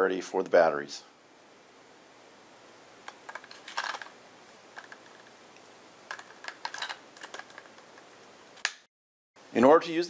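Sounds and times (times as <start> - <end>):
batteries clicking into compartment: 3.1 - 4.1, 4.8 - 5.3, 6.1 - 8.7.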